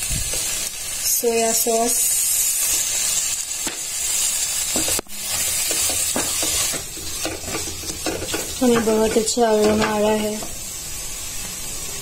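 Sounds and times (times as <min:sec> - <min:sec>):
vegetables sizzling in a pan: 0:00.0 - 0:12.0
spatula scraping and tapping pan: 0:04.7 - 0:10.6.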